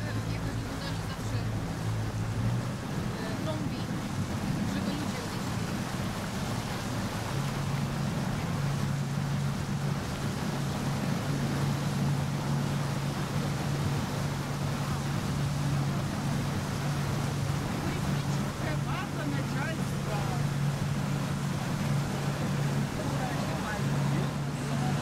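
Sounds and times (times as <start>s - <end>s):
boat motor humming: 0.0s - 25.0s
water noise: 0.0s - 25.0s
wind: 0.0s - 25.0s.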